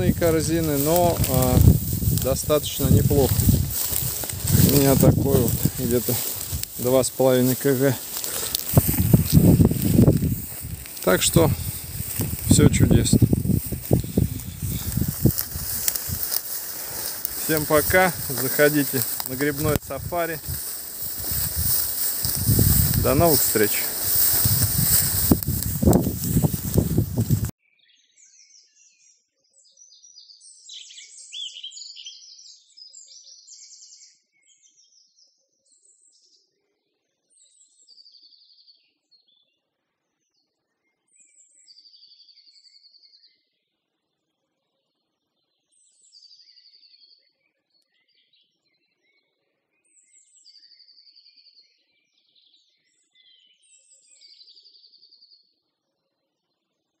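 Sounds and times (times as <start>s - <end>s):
songbird singing: 0.0s - 27.5s.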